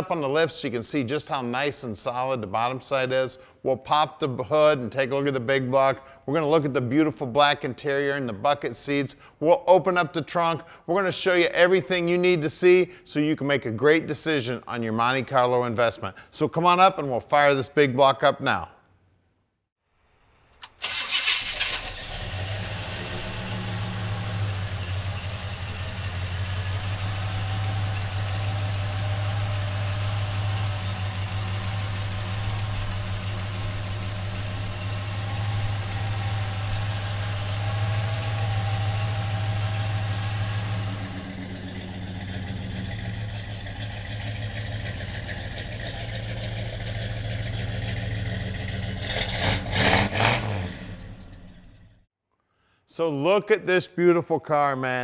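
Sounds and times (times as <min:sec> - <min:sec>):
car engine starting and idling: 0:20.6 - 0:52.1.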